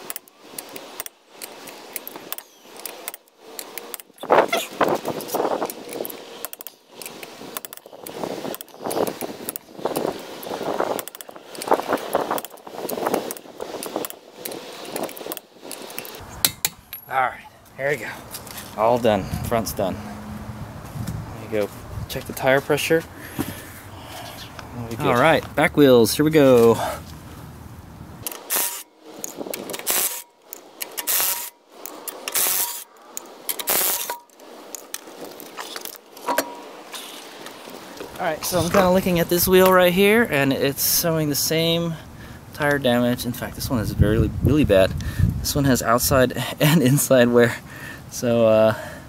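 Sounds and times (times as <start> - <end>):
torque wrench ratcheting: 28.2 - 32.9, 33.5 - 34.8
impact driver rattling bursts: 29.6 - 30.2, 32.2 - 32.9, 33.6 - 34.1.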